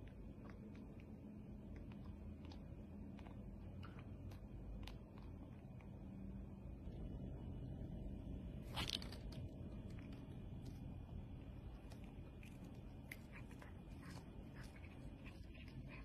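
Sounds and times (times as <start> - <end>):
cat chewing crunches: 0.0 - 6.3, 8.7 - 16.0.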